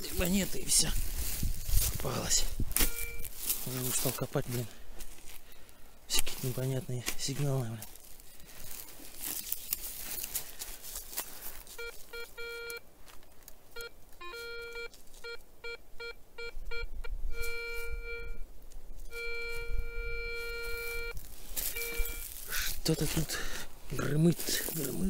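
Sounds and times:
metal detector beeping: 0:02.2 - 0:04.6, 0:11.7 - 0:12.8, 0:13.8 - 0:18.5, 0:19.1 - 0:22.5.

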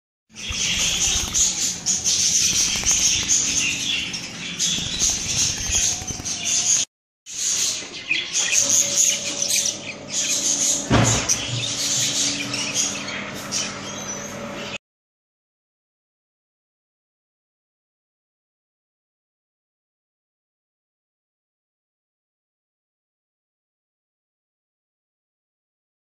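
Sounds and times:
budgerigars chirping and chattering: 0:00.3 - 0:14.8.

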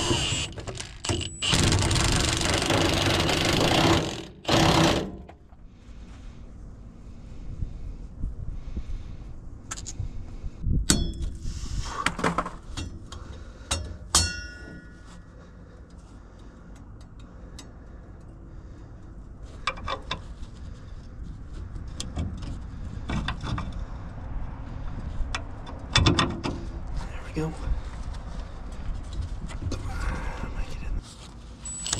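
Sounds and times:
low steady rumble: 0:05.3 - 0:11.9.

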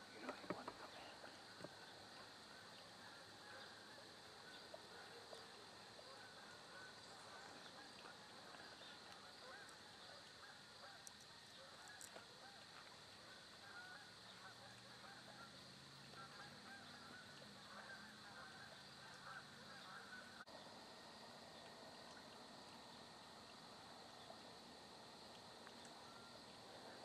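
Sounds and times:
faint distant bird calls: 0:00.0 - 0:27.0.

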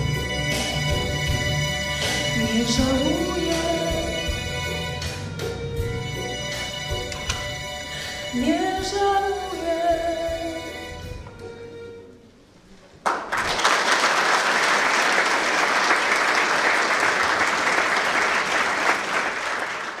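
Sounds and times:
audience applauding: 0:13.0 - 0:20.0.

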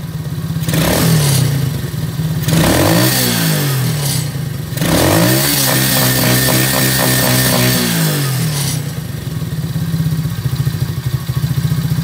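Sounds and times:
engine revving: 0:00.6 - 0:09.6.

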